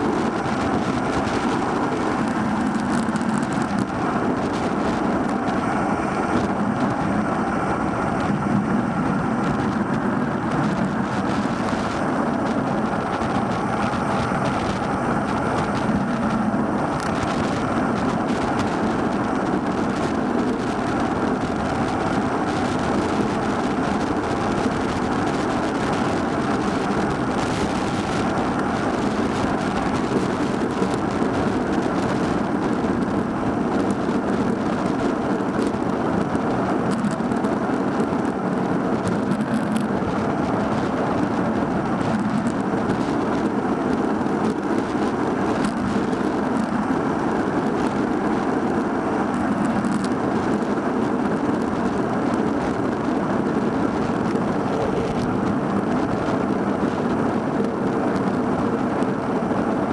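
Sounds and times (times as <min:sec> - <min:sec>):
bicycle road noise: 0:00.0 - 0:59.9
wind buffeting microphone: 0:00.0 - 0:59.9.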